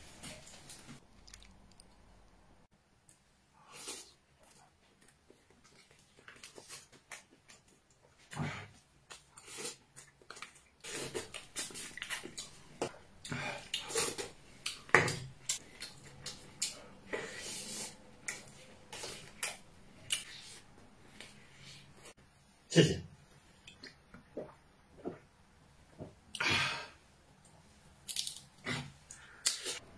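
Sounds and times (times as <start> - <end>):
close-up eating sounds: 0.4 - 2.3, 3.1 - 22.1.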